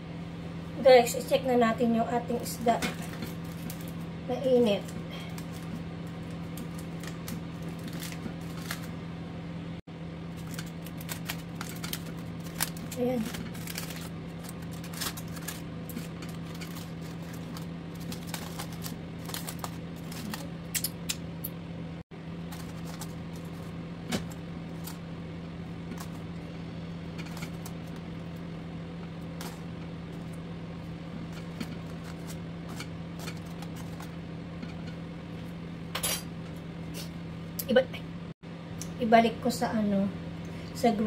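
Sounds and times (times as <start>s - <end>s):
steady low hum: 0.0s - 41.0s
aluminium foil crinkling: 2.4s - 9.0s, 10.3s - 21.2s, 22.4s - 28.4s, 29.0s - 35.0s.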